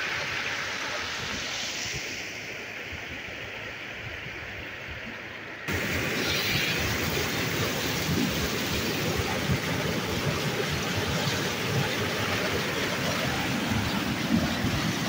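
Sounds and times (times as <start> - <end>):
floodwater rushing over concrete: 5.7 - 15.0.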